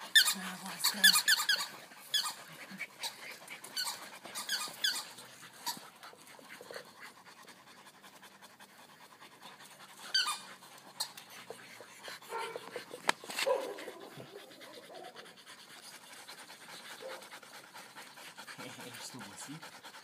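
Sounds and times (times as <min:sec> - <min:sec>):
puppy panting: 0:00.0 - 0:20.0.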